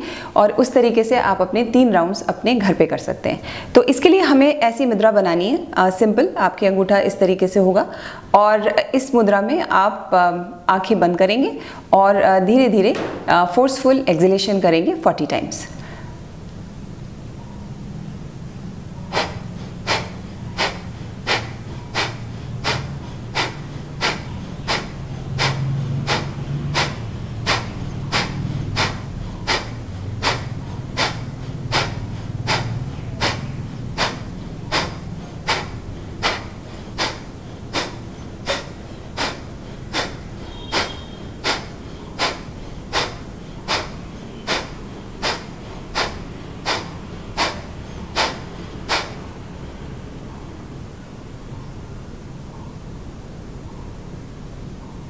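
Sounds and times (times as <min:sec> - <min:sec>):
low steady hum: 0:00.0 - 0:55.0
woman's forceful nasal exhalations: 0:19.1 - 0:49.2.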